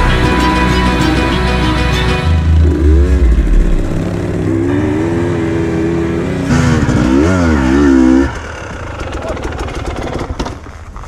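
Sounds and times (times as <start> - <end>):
dirt bike engine revving: 2.0 - 10.4.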